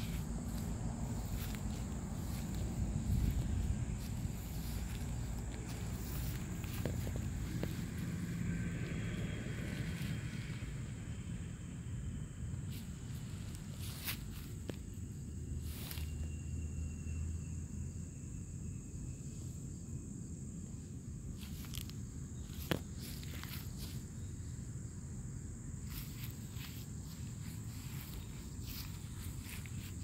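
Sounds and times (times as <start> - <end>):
rustles and footsteps in grass: 0.0 - 10.6, 12.6 - 16.3, 21.3 - 24.4, 25.8 - 30.0
low rumble: 0.0 - 13.1
high insect buzz: 0.0 - 30.0.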